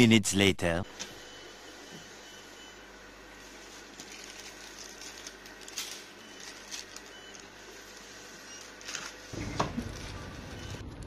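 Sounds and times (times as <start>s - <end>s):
steady background hum: 0.0s - 11.0s
plastic wrappers crinkling: 3.6s - 11.0s.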